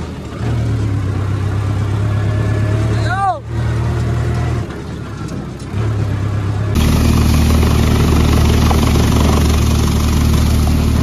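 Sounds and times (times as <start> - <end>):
tractor diesel engine running: 3.0 - 11.0
thresher droning: 6.7 - 11.0.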